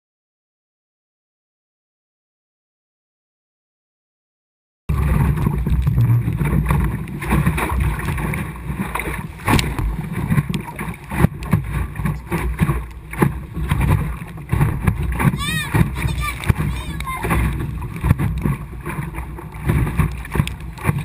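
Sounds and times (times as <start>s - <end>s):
hull slapping choppy water: 4.9s - 21.0s
wind rumble on microphone: 4.9s - 21.0s
sharp knocks: 9.4s - 10.2s.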